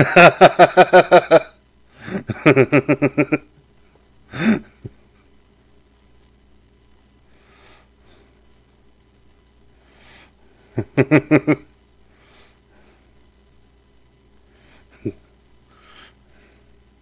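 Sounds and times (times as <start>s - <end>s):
man chuckling: 0.0s - 3.5s, 4.3s - 5.1s, 10.6s - 11.7s, 14.8s - 15.3s
breathing through the nose: 15.7s - 16.8s.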